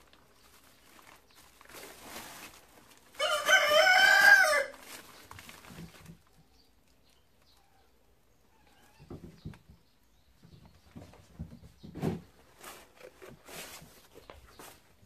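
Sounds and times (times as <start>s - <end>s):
crumpled newspaper rustling: 0.0s - 7.6s, 12.3s - 15.0s.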